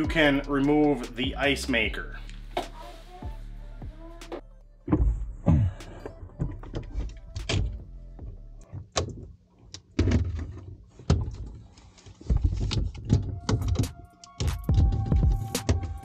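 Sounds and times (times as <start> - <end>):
knocks and clunks of plastic parts: 4.9 - 16.0.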